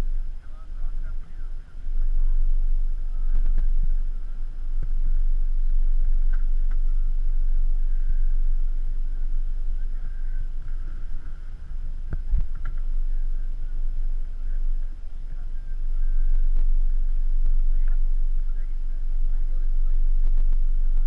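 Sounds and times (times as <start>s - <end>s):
muffled boat engine rumble: 0.0s - 21.0s.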